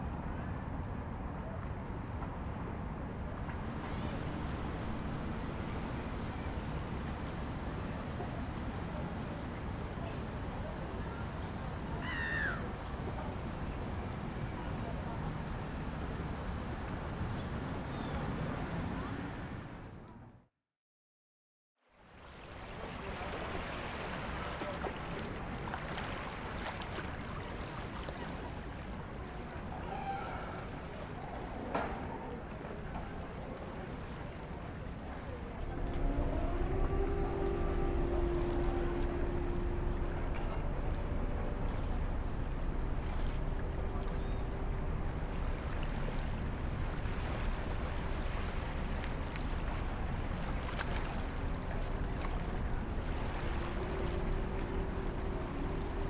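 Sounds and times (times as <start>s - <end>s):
rushing water: 0.0s - 20.0s, 22.0s - 56.0s
low rumbling noise: 0.1s - 10.9s, 34.6s - 56.0s
faint steady hum: 2.5s - 17.9s, 35.0s - 56.0s.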